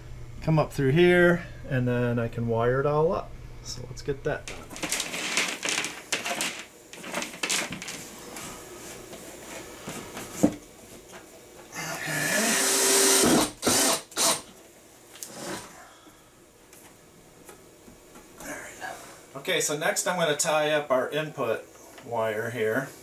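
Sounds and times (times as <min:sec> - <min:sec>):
cordless drill whining: 0:12.2 - 0:14.5.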